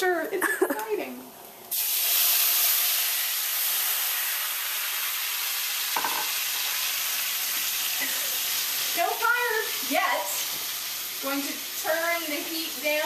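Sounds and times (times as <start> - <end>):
wine sizzling in a hot pan: 1.5 - 13.0.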